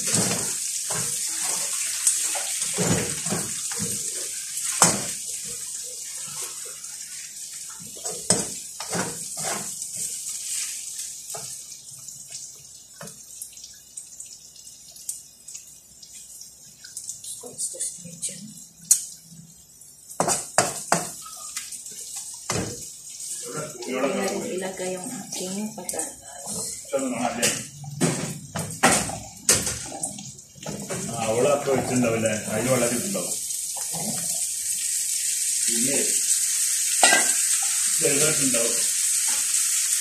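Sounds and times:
food sizzling in a pan: 0:00.0 - 0:12.3, 0:17.2 - 0:40.0
spatula scraping and knocking pan: 0:08.0 - 0:09.8.

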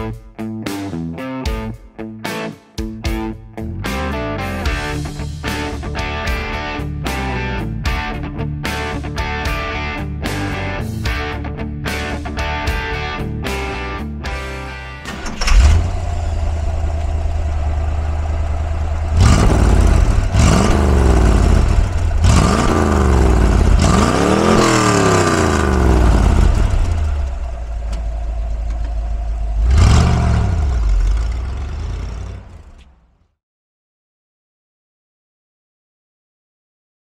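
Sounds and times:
car engine idling and revving: 0:15.0 - 0:33.3.

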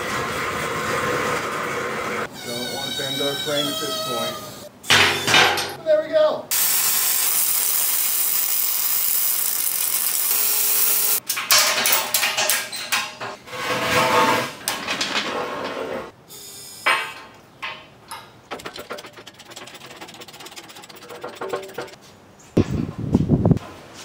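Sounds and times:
welding arc crackling and hissing: 0:06.5 - 0:11.2
metallic clanks and scrapes: 0:11.2 - 0:16.1, 0:16.9 - 0:22.0.

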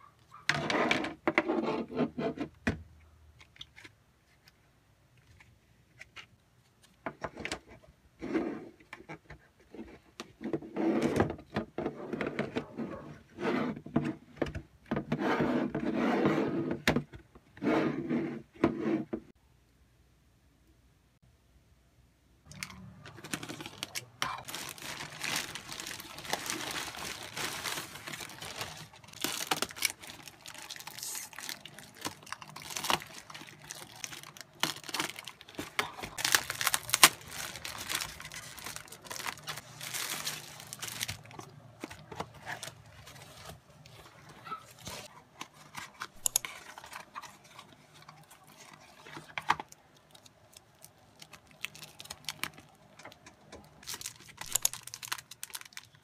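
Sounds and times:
plastic mailer bag crinkling and tearing: 0:22.5 - 0:44.2, 0:48.3 - 0:52.8, 0:53.7 - 0:56.0.

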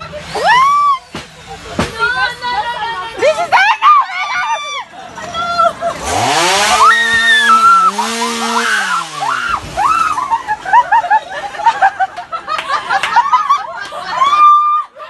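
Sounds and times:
young women screaming: 0:00.3 - 0:01.1, 0:03.4 - 0:05.7, 0:06.6 - 0:10.8, 0:13.4 - 0:15.0
laughter: 0:05.4 - 0:06.5, 0:09.7 - 0:15.0
chainsaw engine revving: 0:05.8 - 0:11.1.

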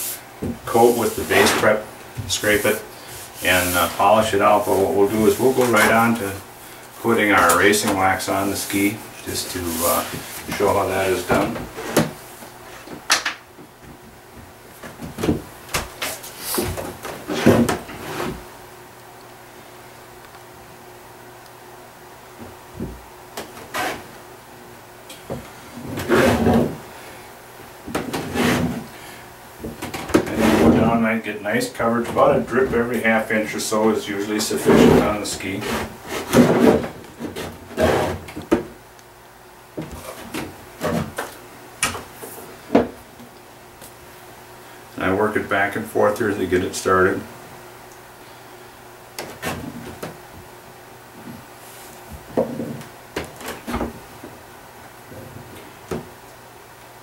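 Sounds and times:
short rubs and knocks: 0:00.0 - 0:06.2, 0:25.3 - 0:26.8, 0:27.9 - 0:28.9, 0:29.6 - 0:30.9, 0:34.5 - 0:38.7
faint steady hum: 0:00.0 - 0:57.0.

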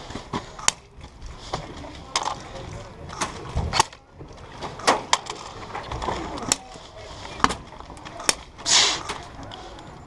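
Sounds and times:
brief hissing burst: 0:08.7 - 0:09.1.

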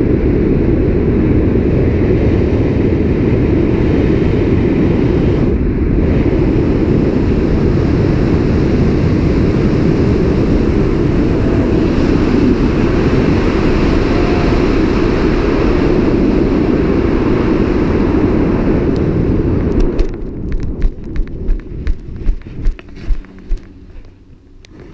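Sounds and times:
wind rushing over microphone: 0:00.0 - 0:24.9
feet landing and running on grass: 0:20.5 - 0:24.1.

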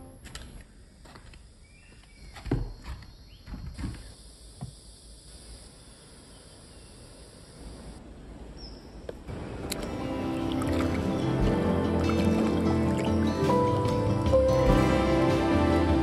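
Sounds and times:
music: 0:09.3 - 0:16.0.

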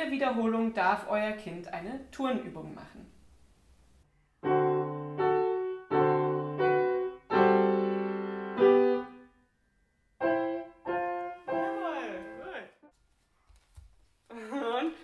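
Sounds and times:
grand piano simple tune: 0:04.2 - 0:12.9.

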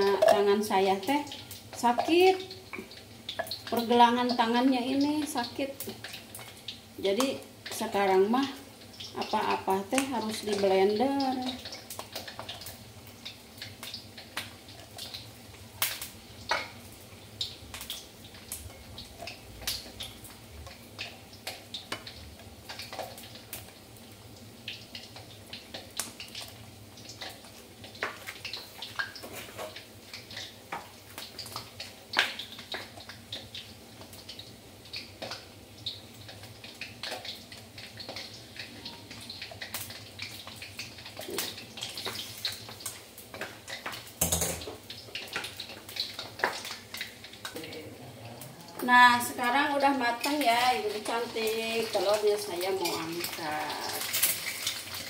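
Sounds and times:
eggs sizzling in hot oil: 0:00.0 - 0:55.0.

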